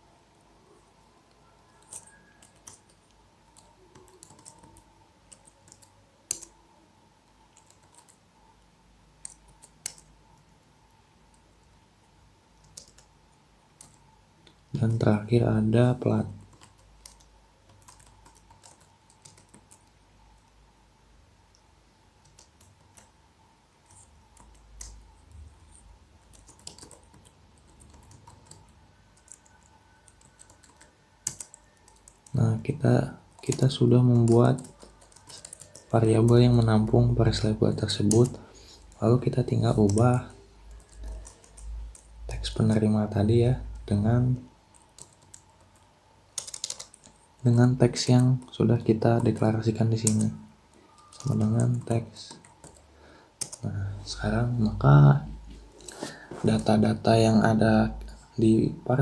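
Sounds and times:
computer keyboard typing: 1.3s - 6.7s, 7.4s - 8.4s, 9.1s - 10.5s, 12.6s - 14.2s, 14.8s - 20.5s, 22.2s - 23.2s, 23.8s - 53.8s.

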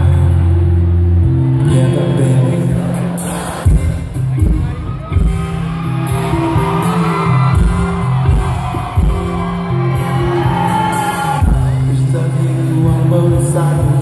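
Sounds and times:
live rock band playing: 2.2s - 14.0s
crowd whooping: 4.6s - 12.2s.

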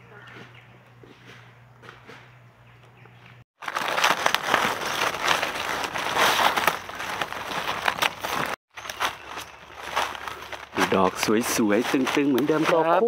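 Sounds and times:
dry leaves crackling and rustling: 3.6s - 13.0s.

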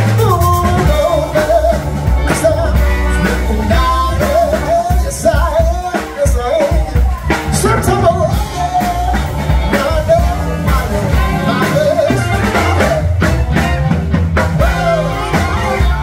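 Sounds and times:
bass guitar: 0.0s - 16.0s
drums: 0.0s - 16.0s
trumpet: 2.1s - 4.8s, 7.6s - 14.0s, 14.6s - 16.0s
tenor saxophone: 9.2s - 16.0s.

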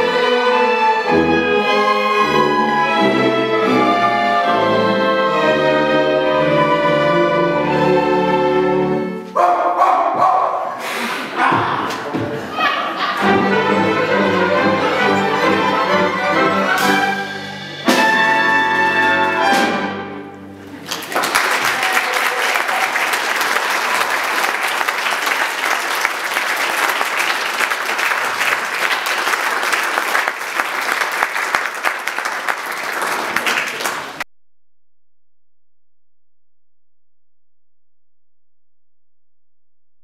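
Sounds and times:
orchestra playing: 0.0s - 9.3s, 13.0s - 21.6s
audience applause: 20.6s - 34.3s.

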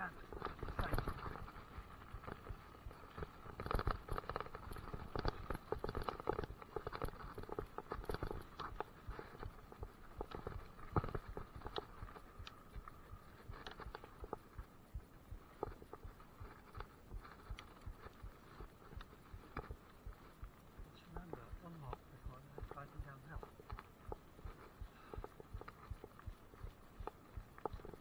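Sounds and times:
mountain bike rattling over dirt: 0.0s - 14.7s.

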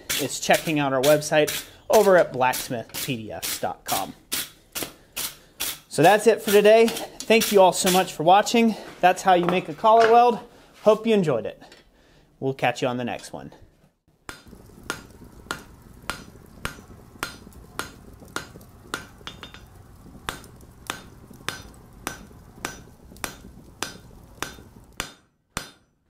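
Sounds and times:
low steady hum: 14.5s - 25.0s.

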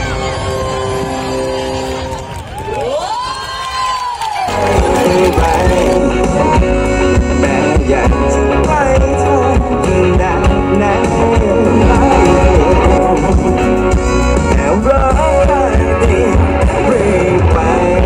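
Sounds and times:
live pop-rock band: 4.4s - 18.0s
man singing: 4.5s - 18.0s.

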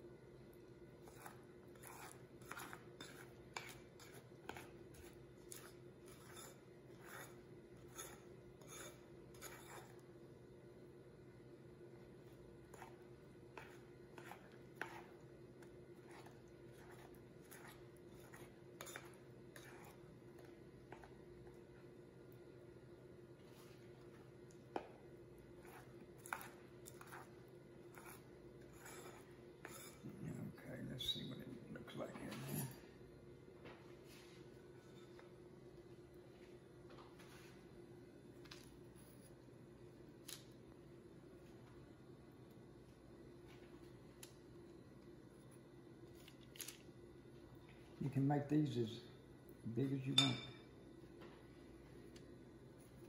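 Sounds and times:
spoon scraping glass bowl: 1.0s - 10.0s, 13.6s - 15.2s, 16.0s - 21.1s, 25.6s - 30.2s
spoon clinking on glass: 50.1s - 50.6s.

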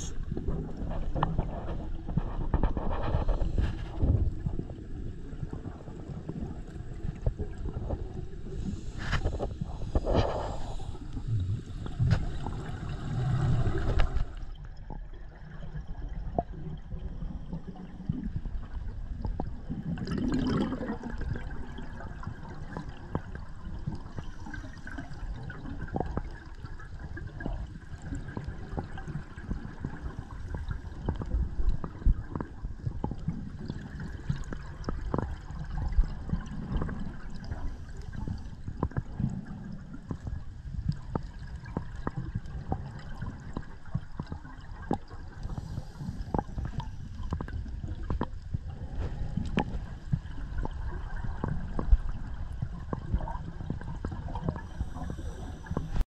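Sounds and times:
underwater bubbles gurgling: 0.0s - 56.0s.

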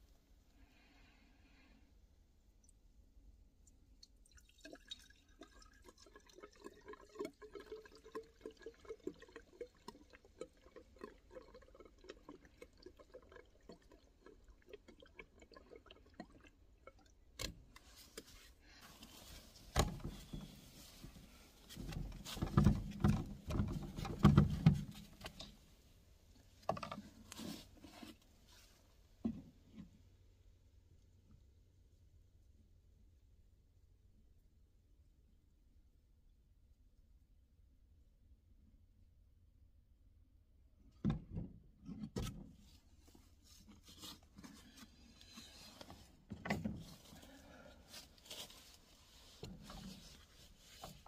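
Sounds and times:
fuel glugging into a tank: 3.8s - 28.3s, 41.2s - 51.0s
clunks and handling noise: 17.4s - 25.6s, 26.6s - 28.3s, 43.7s - 48.8s.

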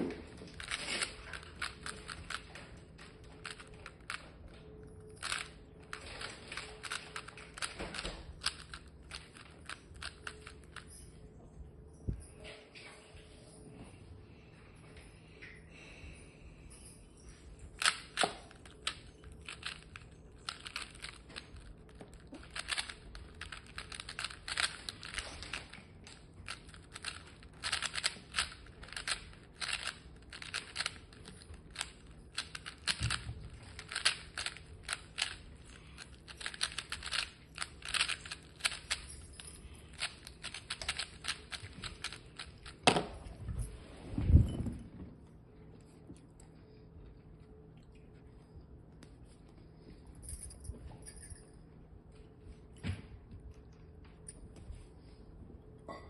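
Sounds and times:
puzzle cube plastic clicks: 0.5s - 4.6s, 5.2s - 10.9s, 17.8s - 39.3s, 39.9s - 42.8s.

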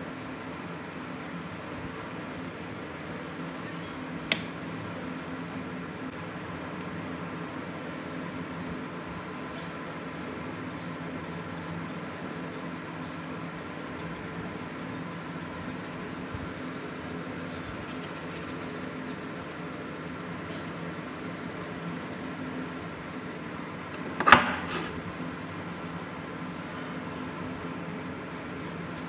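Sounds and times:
electrical hum: 0.0s - 29.0s
brush scrubbing metal blade: 13.8s - 23.5s.

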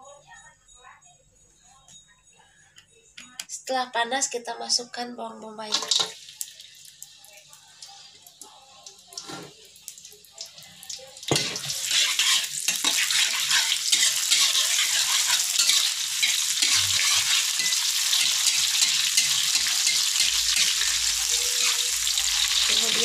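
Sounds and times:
onion sizzling in oil: 5.6s - 23.0s
spatula stirring in wok: 11.3s - 23.0s.

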